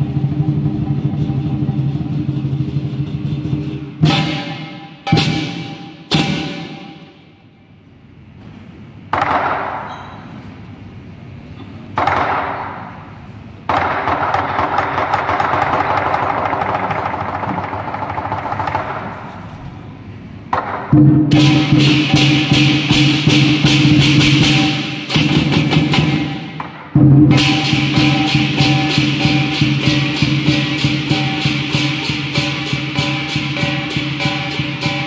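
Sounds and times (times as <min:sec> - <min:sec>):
fast cymbal strikes: 0:00.0 - 0:07.1, 0:21.3 - 0:26.6, 0:27.2 - 0:35.0
big drum: 0:00.0 - 0:07.2, 0:20.5 - 0:35.0
cymbal crashes: 0:00.0 - 0:07.4, 0:21.0 - 0:35.0
cymbal wash: 0:00.0 - 0:07.7, 0:21.0 - 0:35.0.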